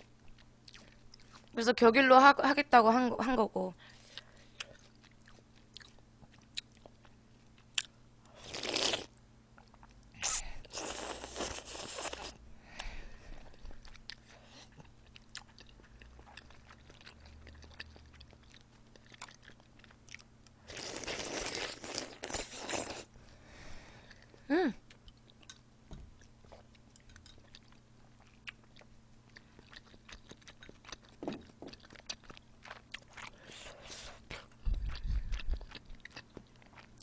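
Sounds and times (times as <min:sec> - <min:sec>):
soft chewing: 0:00.0 - 0:01.6, 0:03.8 - 0:08.4, 0:09.1 - 0:10.1, 0:10.8 - 0:23.4, 0:24.0 - 0:37.0
noodles slurped: 0:10.2 - 0:12.4, 0:20.7 - 0:23.1.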